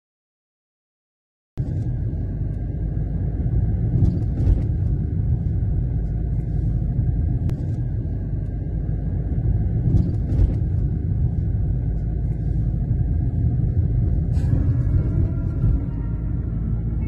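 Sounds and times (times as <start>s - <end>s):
car interior road rumble: 1.6s - 17.0s.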